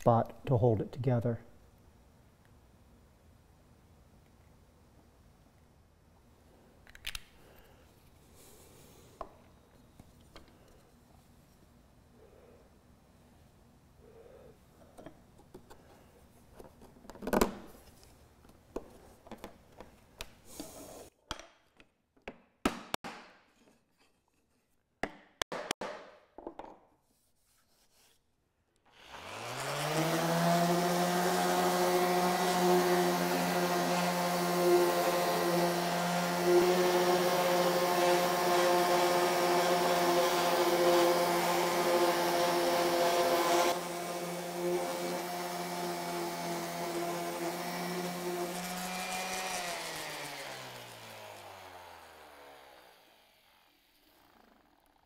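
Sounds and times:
orbital sander running on wood: 29.0s - 55.0s.

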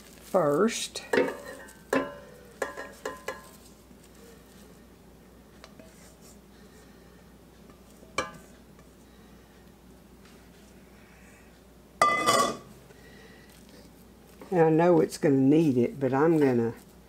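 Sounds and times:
spatula knocking on metal bowl: 1.1s - 3.6s.

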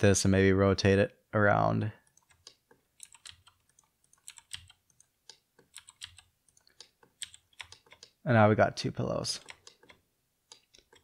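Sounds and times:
keyboard keys clicking: 2.1s - 8.2s, 9.4s - 11.0s.

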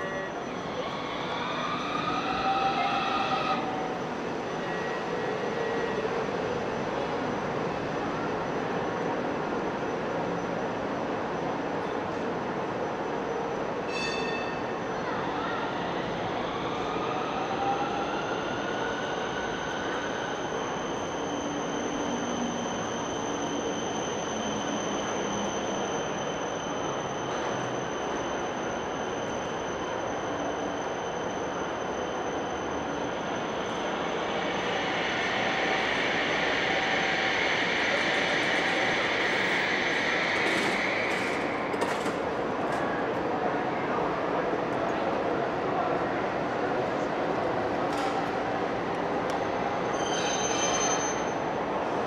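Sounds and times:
tram rumbling: 18.8s - 52.0s.

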